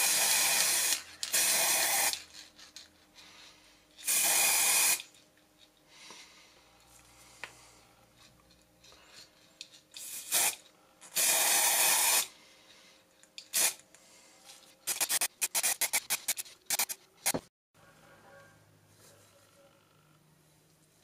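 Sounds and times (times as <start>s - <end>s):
spray-paint can hissing: 0.0s - 2.2s, 4.0s - 5.1s, 10.0s - 10.6s, 11.2s - 12.3s, 13.5s - 13.8s, 14.9s - 17.4s.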